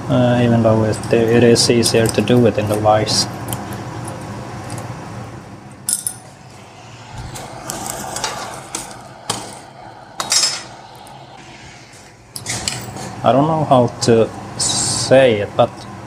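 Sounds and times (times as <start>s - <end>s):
steady low hum: 6.2s - 14.8s.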